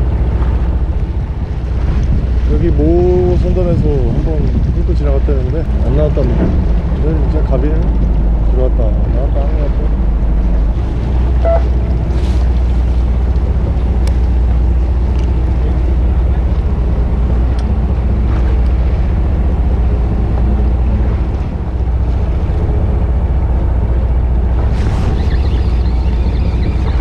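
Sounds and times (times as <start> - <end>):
boat engine running: 0.0 - 27.0
water washing against hull: 0.0 - 27.0
wind buffeting microphone: 0.0 - 27.0.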